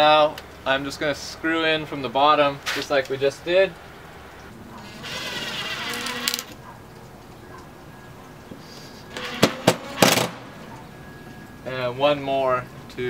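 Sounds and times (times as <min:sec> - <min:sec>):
power drill driving a screw: 0:04.8 - 0:06.6, 0:09.1 - 0:10.3.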